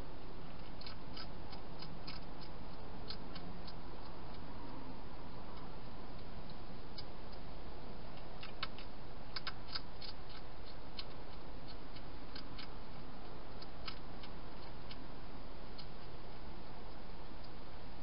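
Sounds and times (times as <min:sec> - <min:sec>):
hedgehog crunching dry food: 0:00.4 - 0:04.4, 0:08.1 - 0:15.0.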